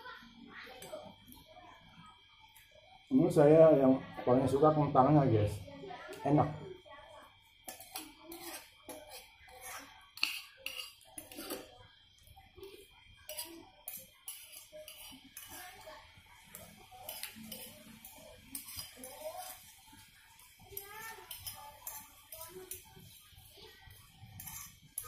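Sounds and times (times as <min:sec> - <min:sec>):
metal spoon scraping a plate: 0:07.6 - 0:11.7, 0:13.2 - 0:19.8, 0:20.6 - 0:25.0.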